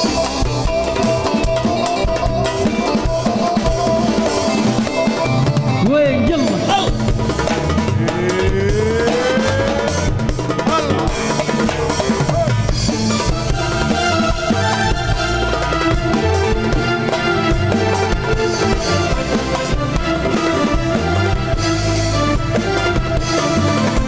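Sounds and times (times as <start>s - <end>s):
drum kit: 0.0s - 24.0s
live band playing pop: 0.0s - 24.0s
rising pitch glide: 7.8s - 24.0s.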